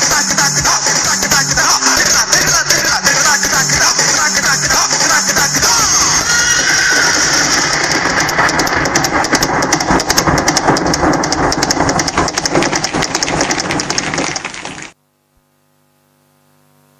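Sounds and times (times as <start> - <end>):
audience applauding: 11.7 - 15.0.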